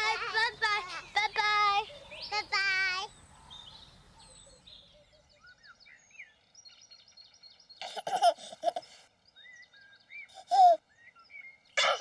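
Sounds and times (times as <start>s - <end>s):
small birds chirping: 0.0s - 12.0s
baby giggling: 7.8s - 9.0s.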